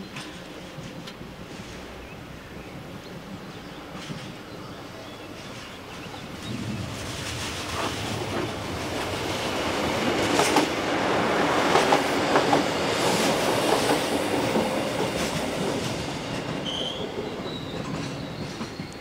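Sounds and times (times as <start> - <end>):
train wheels clattering: 5.4 - 19.0.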